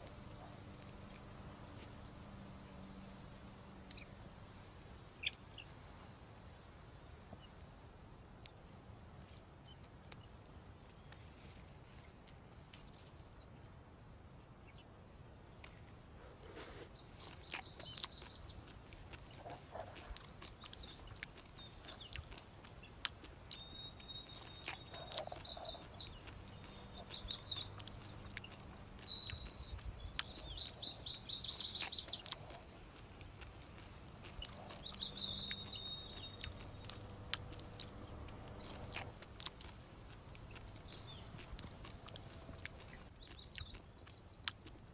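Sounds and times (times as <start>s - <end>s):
light crackles and rustles: 0.0s - 14.4s, 15.2s - 44.9s
high bird chirps: 20.6s - 32.6s, 34.2s - 37.0s.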